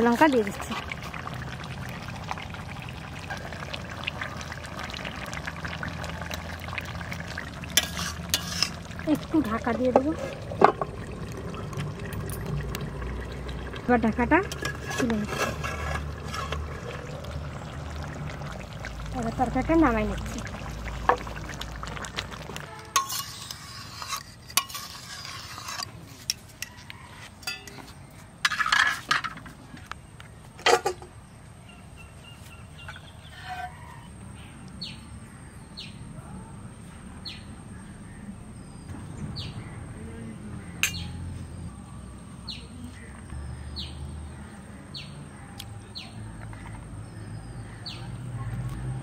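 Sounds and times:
metal cookware clattering: 7.7 - 11.0, 14.3 - 17.1, 22.9 - 25.9, 27.4 - 29.5, 30.7 - 31.1.

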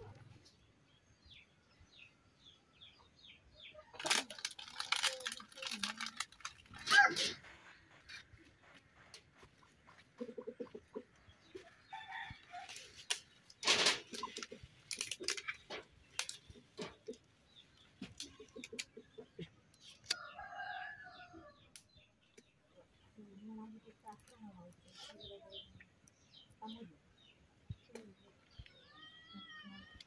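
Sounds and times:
chickens clucking: 7.1 - 26.9.

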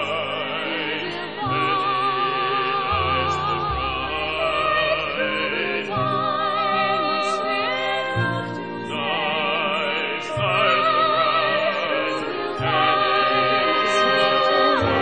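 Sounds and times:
person singing with vibrato: 0.0 - 15.0.

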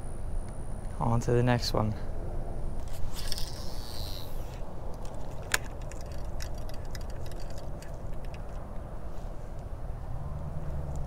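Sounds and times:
fishing reel spool whirring: 2.7 - 8.7
sharp reel click: 2.8 - 8.6
reel cranking ticks: 3.2 - 8.6.

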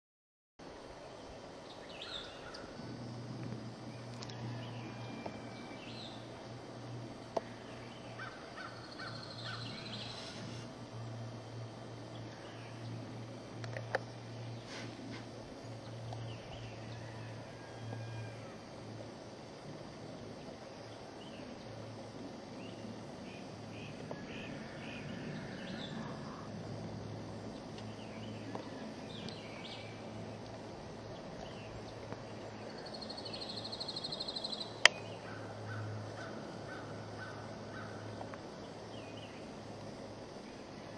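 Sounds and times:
low steady hum: 0.6 - 40.9
outdoor background hiss: 0.6 - 40.9
wild birds calling: 1.7 - 3.0, 7.4 - 10.7, 31.1 - 39.5
small bird chirping: 7.8 - 10.6, 32.7 - 35.3.

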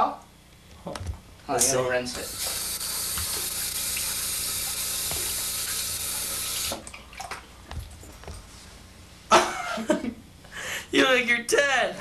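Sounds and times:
sink faucet running: 2.1 - 6.9.

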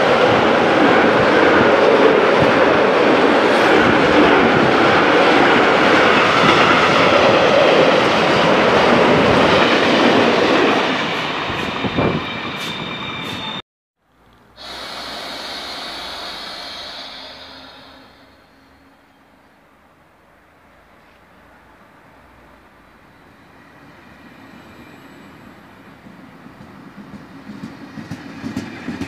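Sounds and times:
train at a station: 0.0 - 13.6, 14.2 - 29.0
thin high squeal: 14.7 - 19.5.

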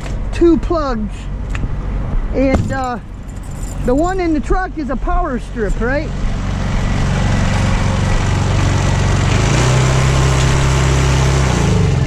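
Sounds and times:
portable generator running: 5.8 - 12.0.

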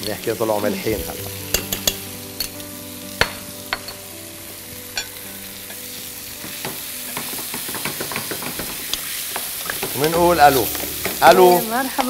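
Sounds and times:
food sizzling in a frying pan: 0.0 - 12.0
utensil clicking against pan: 6.6 - 10.1.

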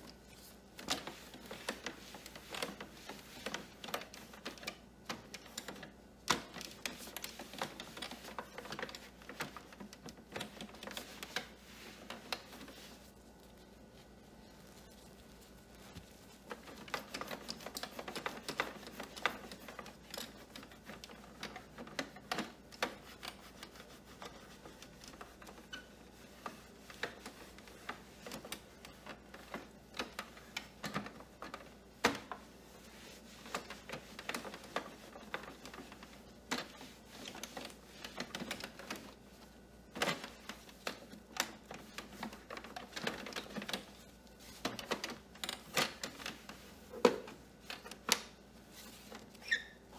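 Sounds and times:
cloth rubbing on plastic: 0.0 - 49.9
small clicks and taps on plastic: 26.4 - 32.5.

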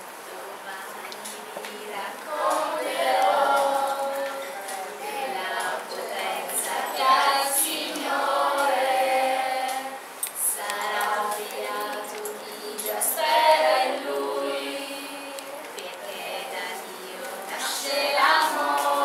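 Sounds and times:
group of voices singing: 0.0 - 19.0.

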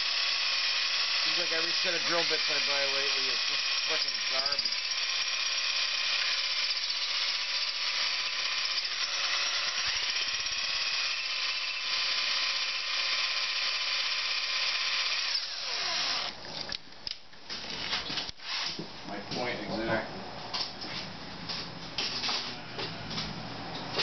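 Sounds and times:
cordless drill whining into bolt: 0.0 - 16.4
drill spinning down: 0.0 - 16.4.

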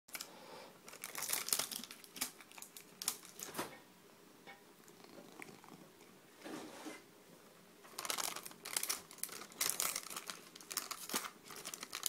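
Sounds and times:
treat packet crinkling: 0.1 - 3.6, 7.8 - 12.0.

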